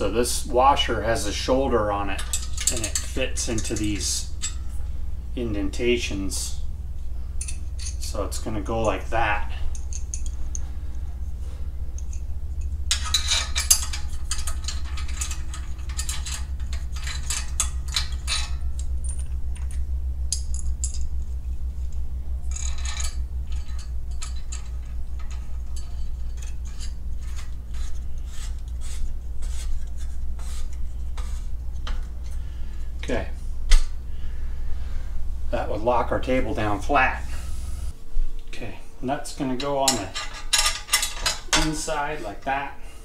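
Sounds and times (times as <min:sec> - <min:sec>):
steady low hum: 0:00.0 - 0:43.0
metal hardware clicking and clinking: 0:00.9 - 0:04.8, 0:07.4 - 0:11.0, 0:11.9 - 0:28.8, 0:39.5 - 0:41.9.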